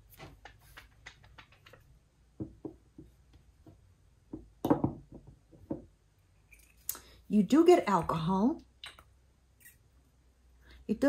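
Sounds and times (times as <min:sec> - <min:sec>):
glass bottle and cap clicking: 0:08.8 - 0:09.8.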